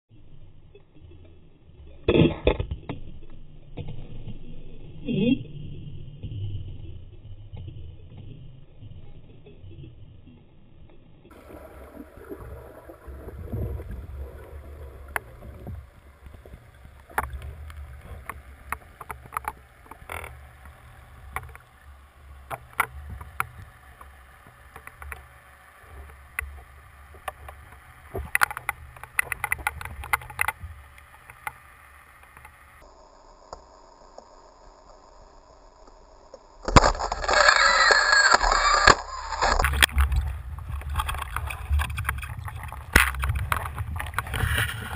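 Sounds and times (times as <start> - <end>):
underwater rumble: 0.1 - 44.9
clicks and crackles: 12.3 - 44.9.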